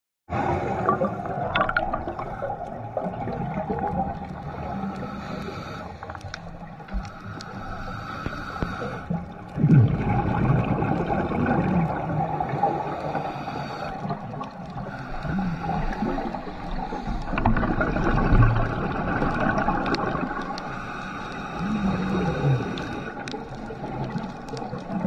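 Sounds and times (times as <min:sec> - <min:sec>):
water bubbling underwater: 0:00.3 - 0:25.0.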